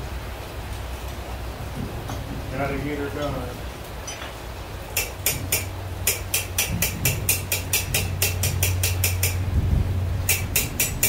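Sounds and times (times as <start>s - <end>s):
hammer striking steel on anvil: 5.0s - 9.4s, 10.3s - 11.0s.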